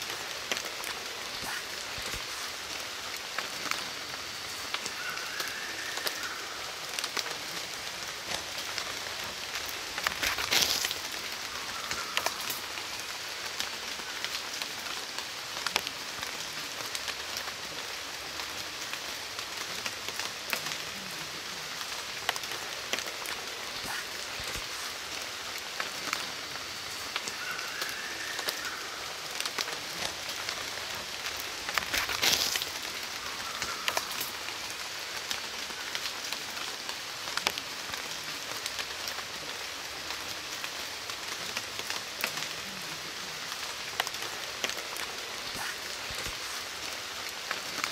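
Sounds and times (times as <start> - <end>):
steady rain falling: 0.0 - 47.9
faint call: 3.2 - 14.8, 19.7 - 36.7.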